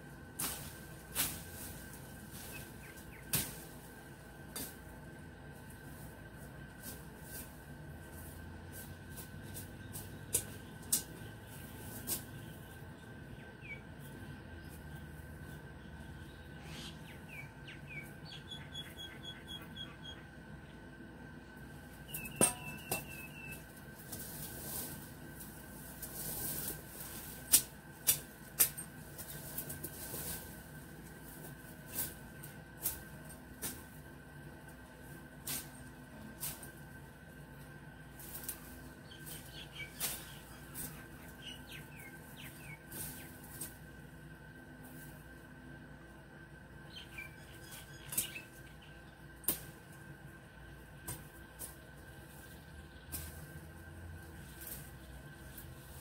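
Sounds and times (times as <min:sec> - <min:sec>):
dry leaves and twigs crackling: 0:00.0 - 0:18.4, 0:21.8 - 0:45.6, 0:46.9 - 0:56.0
shrub stems being cut: 0:00.4 - 0:04.9, 0:05.8 - 0:12.8, 0:22.1 - 0:34.0, 0:34.7 - 0:37.0, 0:37.6 - 0:44.0, 0:47.0 - 0:48.6, 0:49.4 - 0:50.0, 0:51.0 - 0:56.0
bird chirp: 0:12.4 - 0:20.8, 0:22.1 - 0:23.6, 0:39.0 - 0:43.4, 0:46.8 - 0:49.2.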